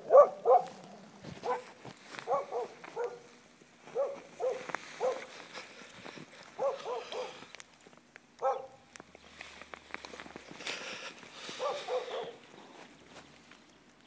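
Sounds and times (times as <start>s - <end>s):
dog barking: 0.0s - 0.8s, 1.4s - 3.3s, 3.9s - 5.3s, 6.6s - 7.4s, 8.4s - 8.8s, 11.6s - 12.4s.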